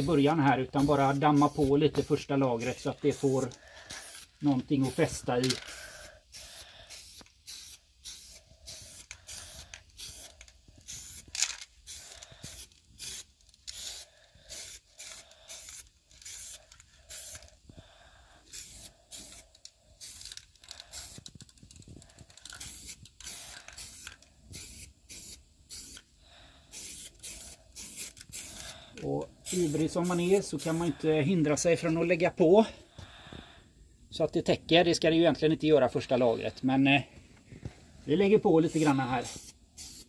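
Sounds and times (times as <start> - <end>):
aerosol spray can hissing: 0.0 - 21.5, 22.1 - 31.0, 38.6 - 40.0.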